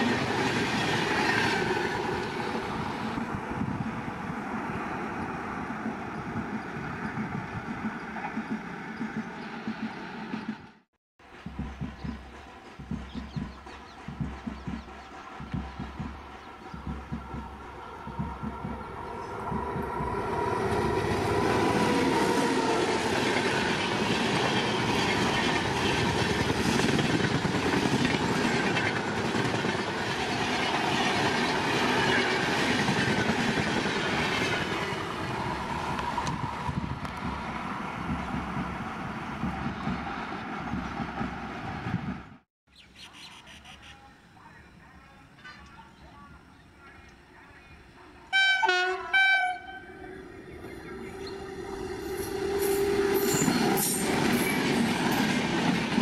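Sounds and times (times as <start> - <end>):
train wheels clattering on rails: 5.8 - 35.0, 35.9 - 42.4, 52.0 - 56.0
faint train horn: 48.2 - 50.1.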